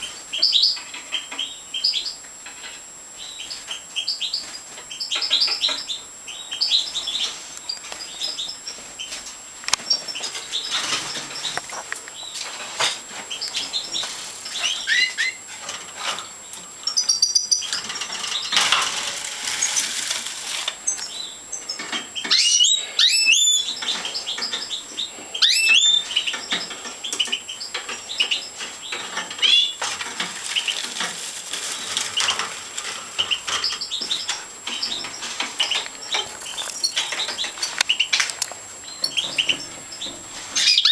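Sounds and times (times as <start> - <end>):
finches chirping and twittering: 0.0 - 19.9, 20.8 - 40.9
wing flutters and rustling: 6.9 - 21.1, 26.1 - 38.4
sharp rising bird calls: 22.3 - 26.3.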